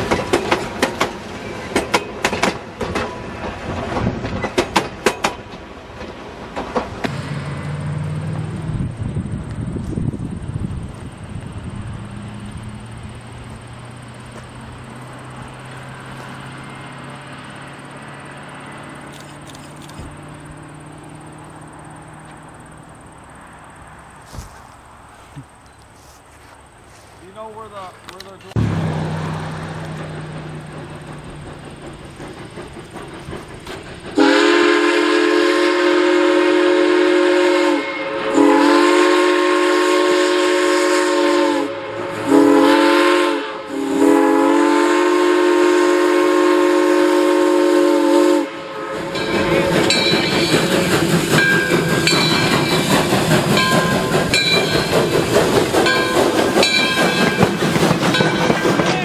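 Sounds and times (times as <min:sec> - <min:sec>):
train wheels clicking over rail joints: 0:00.0 - 0:35.3, 0:48.9 - 0:59.0
steam locomotive whistle: 0:34.1 - 0:55.1.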